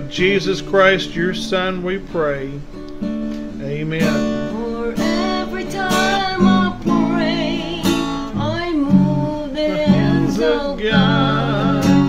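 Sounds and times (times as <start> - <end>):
acoustic guitar strumming: 0.0 - 12.0
woman singing: 4.5 - 12.0.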